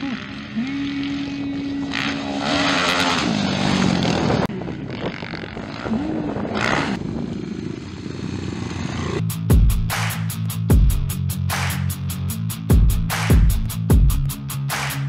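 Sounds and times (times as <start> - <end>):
motocross bike engines revving: 0.0 - 9.2.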